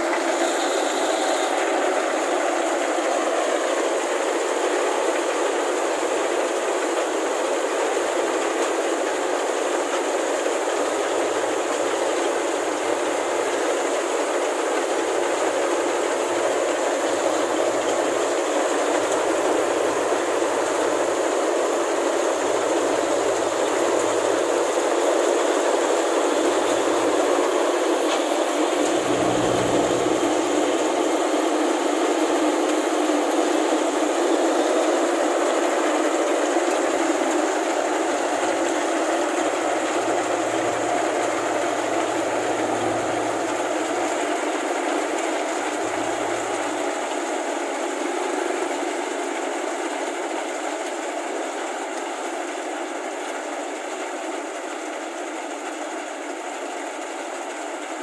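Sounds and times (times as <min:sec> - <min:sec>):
combine harvester clatter: 0:26.4 - 0:31.1, 0:39.4 - 0:47.1.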